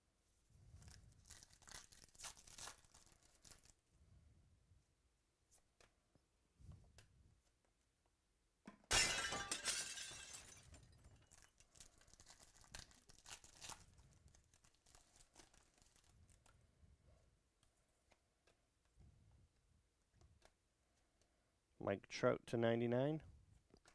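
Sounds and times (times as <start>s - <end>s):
foil wrapper crinkling: 0.8s - 3.8s, 11.2s - 16.5s
foil wrapper tearing: 0.8s - 3.8s, 11.3s - 16.4s.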